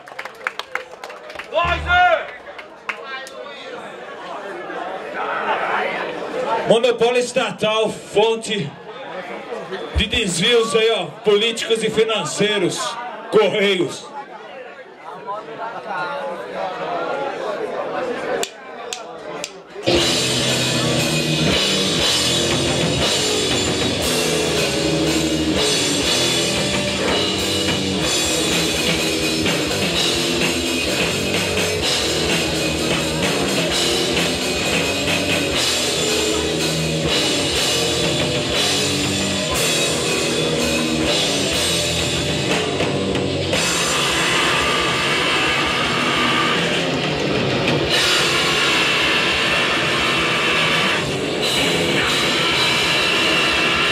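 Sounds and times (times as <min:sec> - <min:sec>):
distorted electric guitar: 0:01.6 - 0:02.3, 0:19.9 - 0:53.9
pounding drum kit: 0:01.6 - 0:02.3, 0:19.9 - 0:53.9.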